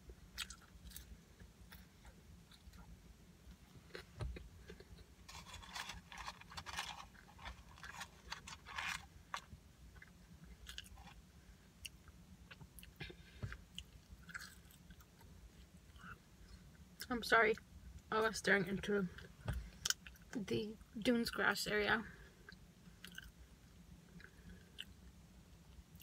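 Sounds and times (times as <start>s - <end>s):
person chewing food: 0.3s - 3.0s, 3.6s - 11.2s, 11.8s - 16.2s, 22.4s - 23.4s, 24.1s - 25.0s.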